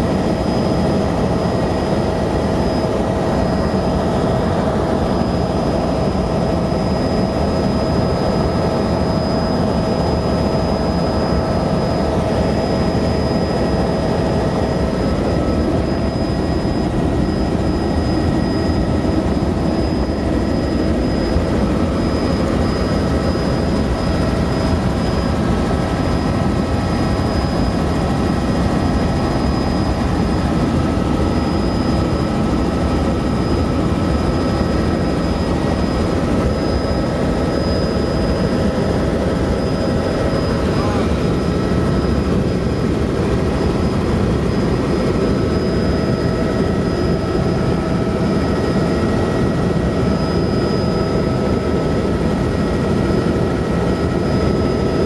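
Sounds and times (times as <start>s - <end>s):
helicopter rotor and engine rumble: 0.0s - 55.0s
high turbine whine: 0.0s - 55.0s.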